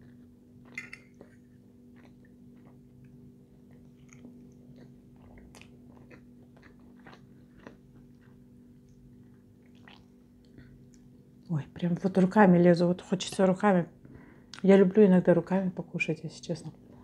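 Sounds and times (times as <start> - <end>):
person chewing food: 0.0 - 11.2
faint steady hum: 0.0 - 17.0.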